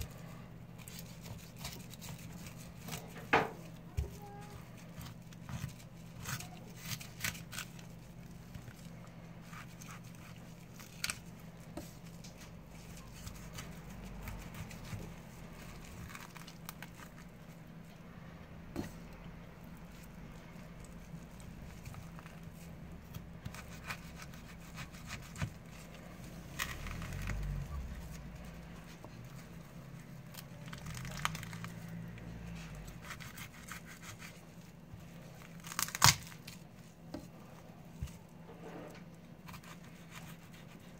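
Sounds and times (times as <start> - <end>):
knife cutting through fish: 39.4 - 40.9.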